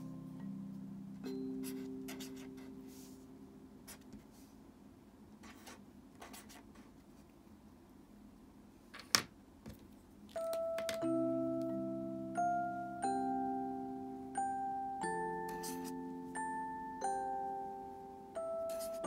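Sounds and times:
felt-tip pen scratching on paper: 15.5s - 16.0s, 18.7s - 19.0s.

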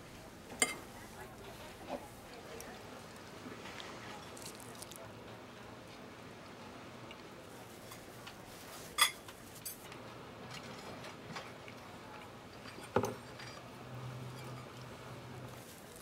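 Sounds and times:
cutlery clinking against plates: 0.6s - 0.9s, 8.9s - 9.9s, 12.6s - 13.7s, 14.3s - 14.8s.

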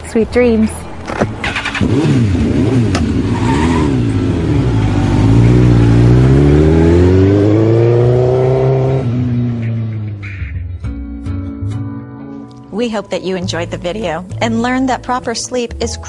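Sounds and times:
car engine accelerating: 1.0s - 10.2s.

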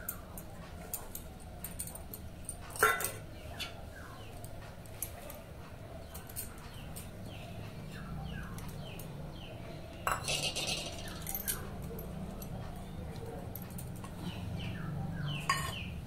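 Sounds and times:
metal bowl clatter: 2.8s - 3.2s, 10.0s - 11.6s, 15.4s - 15.9s.

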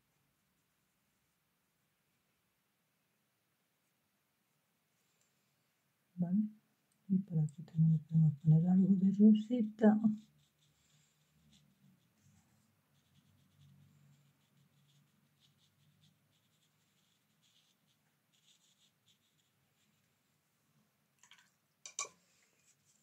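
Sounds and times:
brush strokes on paper: 7.8s - 20.5s, 22.0s - 23.0s.

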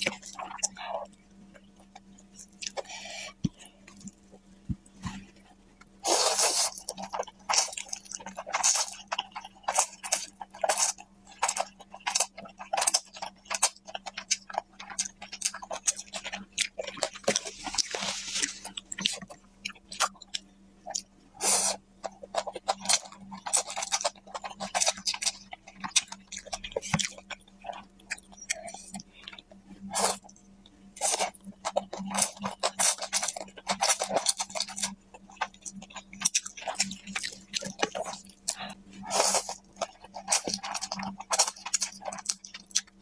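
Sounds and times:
wet chewing and smacking: 0.0s - 21.2s, 22.0s - 43.0s
slurping noodles: 6.0s - 7.0s.

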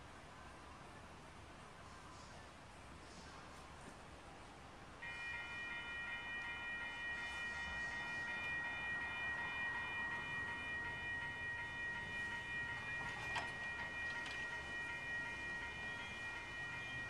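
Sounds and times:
crossing warning bell ringing: 5.0s - 17.0s.

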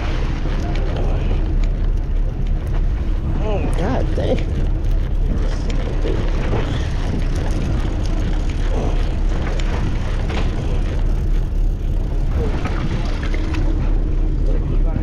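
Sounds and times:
boat engine humming: 0.0s - 15.0s
water hissing along hull: 3.0s - 15.0s.

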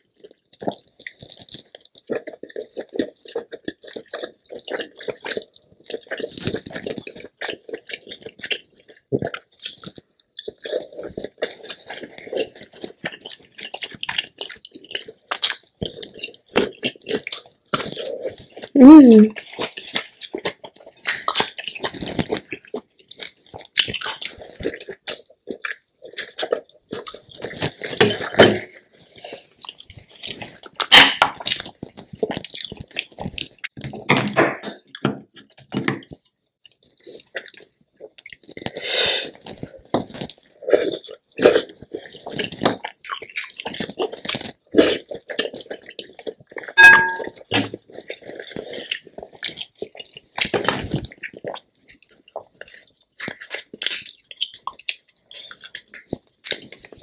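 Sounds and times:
chewing crab legs: 0.0s - 57.0s
clink against glass bowl: 46.8s - 47.3s.

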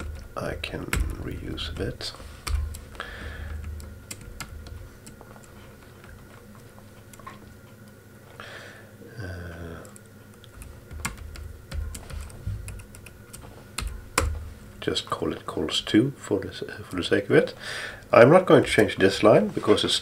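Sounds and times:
computer keyboard keystrokes: 0.0s - 5.5s, 9.8s - 14.4s.

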